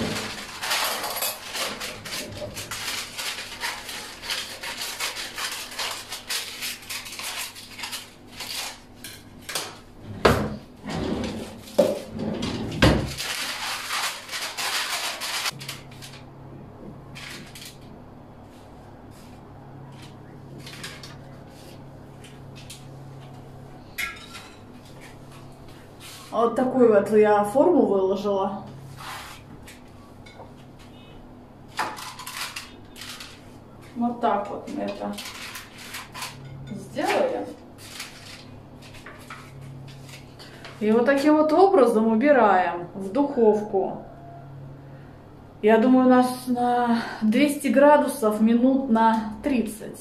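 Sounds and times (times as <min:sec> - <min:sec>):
cutlery rummaging in a drawer: 0:00.0 - 0:08.8, 0:11.3 - 0:16.2
cookware rustling and scraping: 0:00.0 - 0:16.3, 0:18.5 - 0:26.4, 0:31.7 - 0:41.7.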